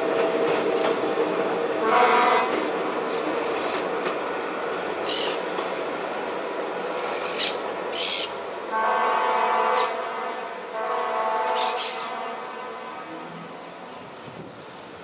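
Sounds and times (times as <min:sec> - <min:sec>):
diesel railcar running: 0:00.0 - 0:15.0
train horn: 0:01.8 - 0:02.7, 0:08.7 - 0:14.1.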